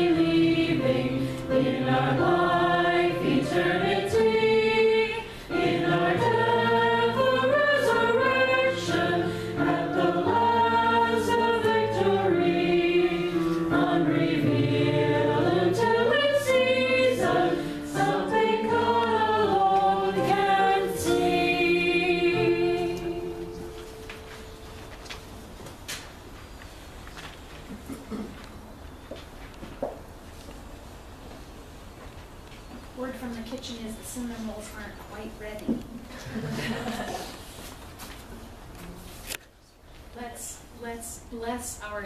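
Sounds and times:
congregation singing a hymn: 0.0 - 24.6
piano accompaniment: 0.0 - 25.9.

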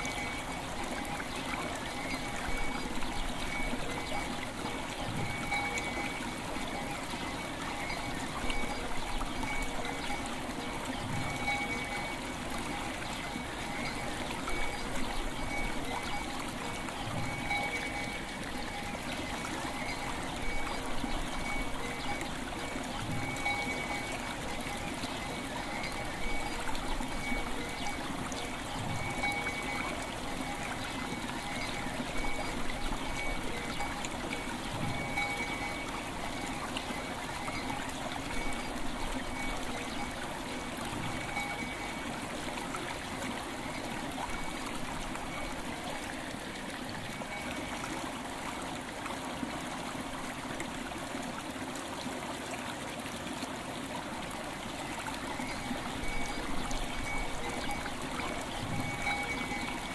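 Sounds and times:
faint bell tones: 0.0 - 42.9, 43.5 - 48.0, 54.8 - 59.9
river water flowing: 0.0 - 59.9.

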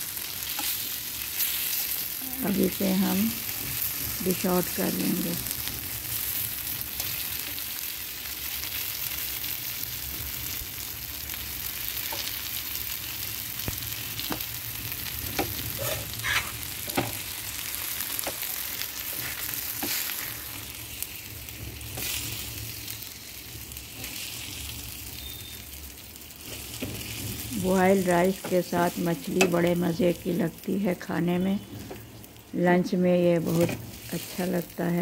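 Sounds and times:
fish sizzling in oil: 0.0 - 35.0.

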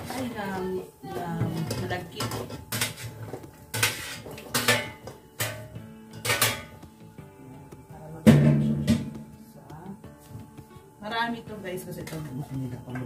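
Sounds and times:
metal tray clatter: 1.6 - 5.6
spoon scraping metal tray: 2.2 - 4.8.

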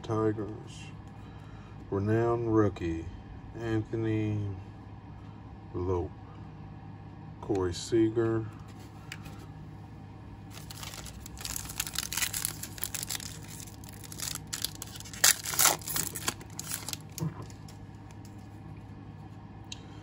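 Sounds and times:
trading cards rustling and scraping: 8.6 - 9.5, 10.5 - 18.6.

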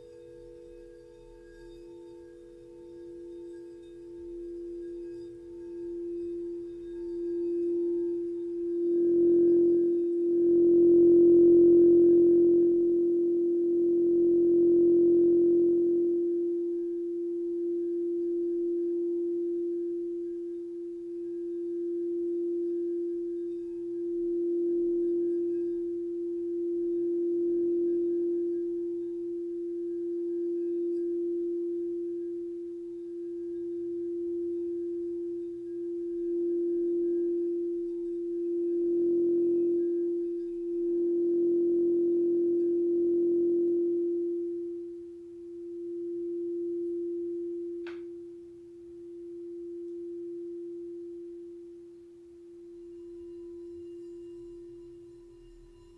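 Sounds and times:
singing bowl ringing: 0.0 - 55.9.

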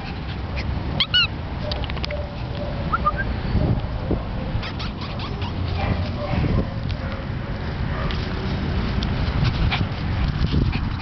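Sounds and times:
dog yelping: 0.6 - 3.3, 4.4 - 6.6.

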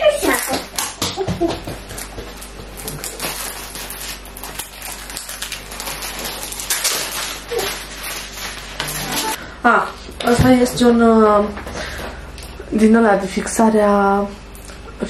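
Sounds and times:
plastic and paper packaging rustling: 1.8 - 9.4.

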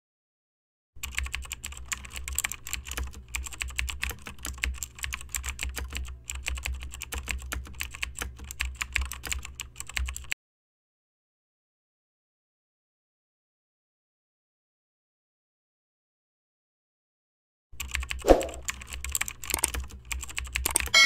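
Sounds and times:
keyboard key clicks: 17.8 - 21.0.

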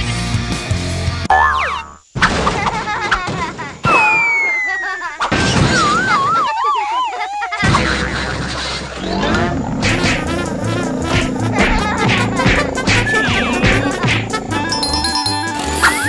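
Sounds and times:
cartoon music and effects: 1.3 - 2.0, 9.0 - 16.0
wobbling tone: 9.0 - 16.0.

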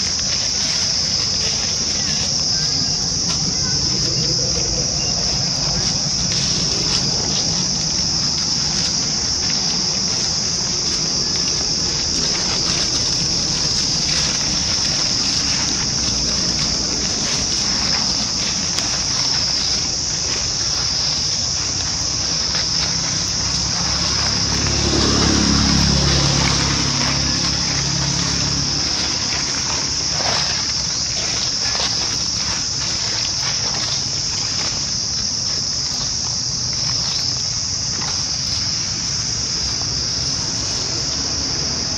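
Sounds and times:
dry leaves crackling: 0.0 - 41.9
insects chorus: 0.0 - 41.9.

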